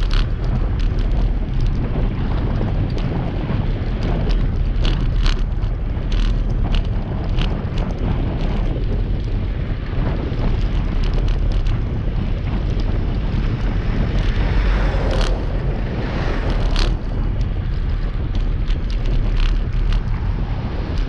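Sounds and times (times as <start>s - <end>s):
road and traffic noise: 0.0s - 21.0s
wind buffeting microphone: 0.0s - 21.0s
rushing noise: 9.4s - 21.0s.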